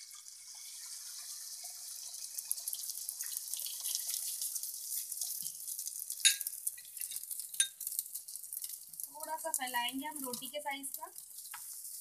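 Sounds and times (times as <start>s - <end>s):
egg sizzling on hot pan: 0.0s - 12.0s.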